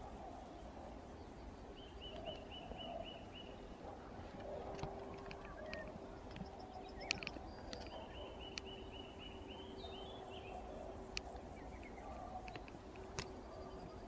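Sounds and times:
faint steady hum: 0:00.0 - 0:14.0
sharp clicks: 0:04.4 - 0:08.8, 0:12.4 - 0:13.5.

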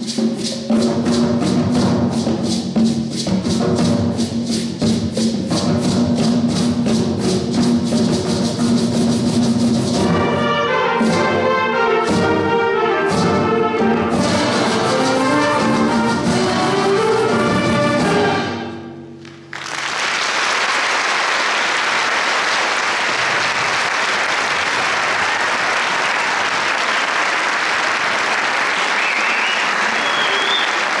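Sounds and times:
audience applause: 0:19.2 - 0:31.0.

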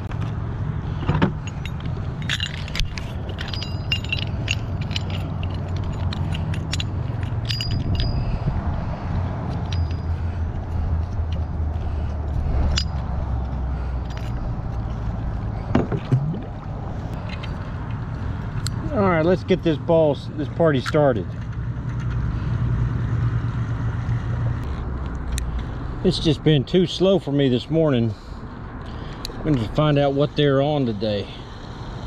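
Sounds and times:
metal anchor clinking and rattling: 0:00.0 - 0:08.8, 0:09.4 - 0:22.3
steady low rumble: 0:00.0 - 0:21.2.

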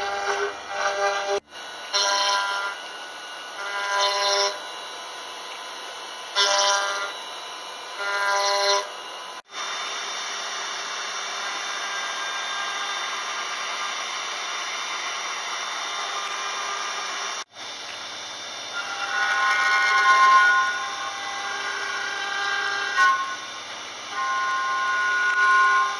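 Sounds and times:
cnc router milling wood: 0:00.0 - 0:25.9.

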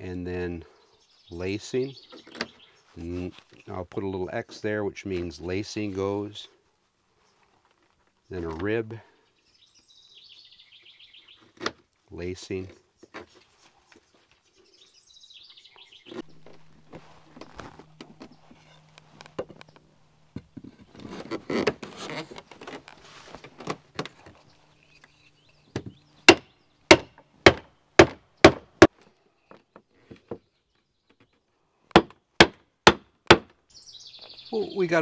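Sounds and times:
wood rustling and handling: 0:02.1 - 0:06.3, 0:07.3 - 0:08.8, 0:11.4 - 0:14.4, 0:16.1 - 0:25.2
stakes hammered into ground: 0:26.3 - 0:28.9, 0:31.9 - 0:33.5.

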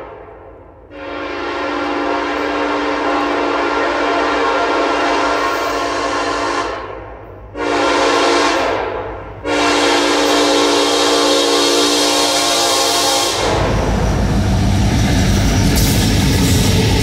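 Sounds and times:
locomotive air horn blasts: 0:00.9 - 0:13.8.

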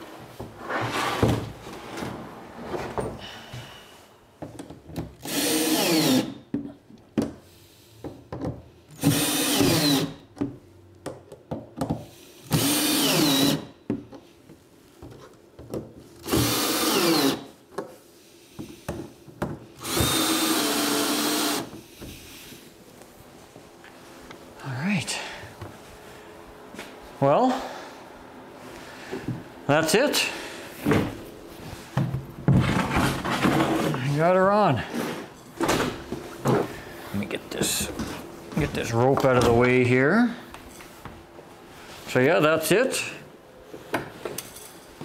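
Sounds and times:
cordless drill driving bolts: 0:05.2 - 0:06.4, 0:09.0 - 0:10.2, 0:12.4 - 0:13.7, 0:16.2 - 0:17.5, 0:19.8 - 0:21.7.

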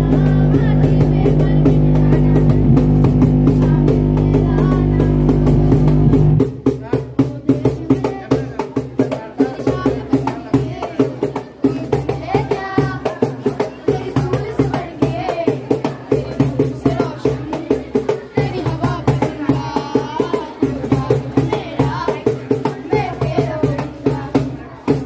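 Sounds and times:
boys singing together: 0:00.0 - 0:25.0
tabla beat: 0:00.0 - 0:25.0.

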